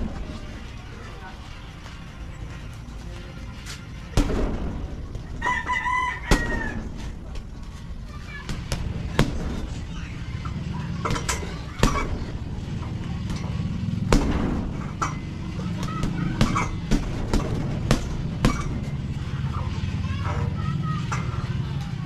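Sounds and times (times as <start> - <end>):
gloves punching heavy bag: 8.4 - 9.8, 11.0 - 19.0.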